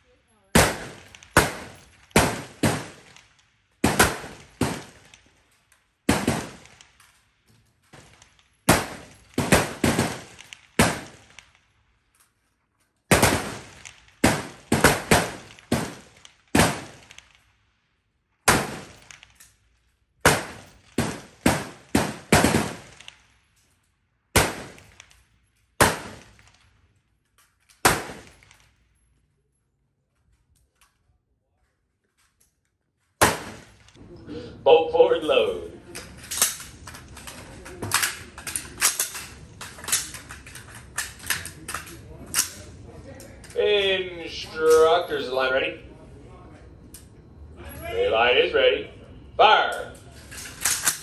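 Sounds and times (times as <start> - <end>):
rifle shots echoing: 0.5 - 7.2, 7.9 - 11.8, 13.1 - 17.6, 18.4 - 19.4, 20.2 - 23.4, 24.3 - 26.8, 27.8 - 28.8, 33.2 - 34.0.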